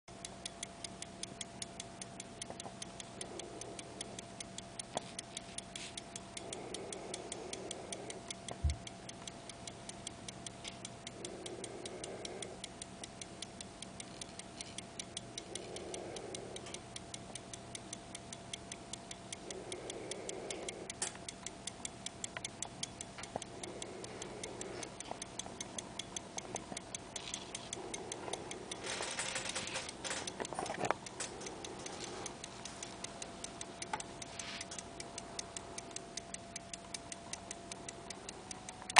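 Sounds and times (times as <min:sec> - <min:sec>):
pocket watch ticking: 0:00.1 - 0:38.9.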